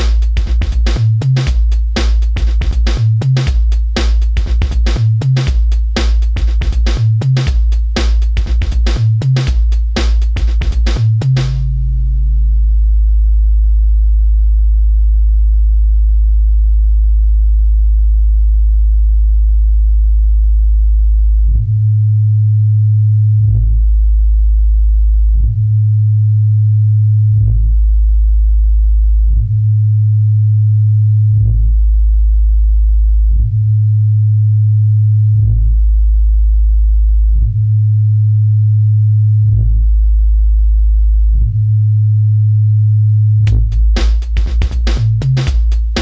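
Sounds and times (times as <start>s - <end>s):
drum machine hits: 0.0s - 11.7s, 43.5s - 46.0s
deep bass test tones: 0.0s - 46.0s.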